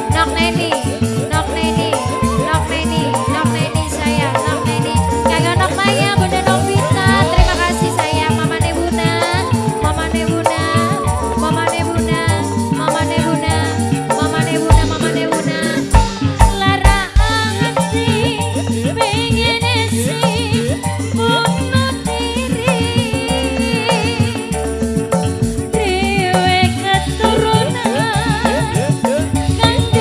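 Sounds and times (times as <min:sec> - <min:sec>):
rattling percussion: 0:00.0 - 0:30.0
steady drum beat: 0:00.0 - 0:30.0
woman singing with vibrato: 0:00.0 - 0:30.0.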